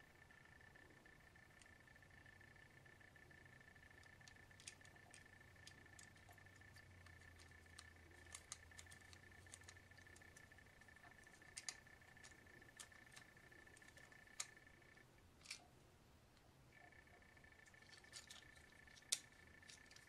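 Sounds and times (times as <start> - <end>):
faint steady high tone: 0.0 - 20.0
plastic parts clicking when handled: 3.2 - 15.7, 17.1 - 20.0.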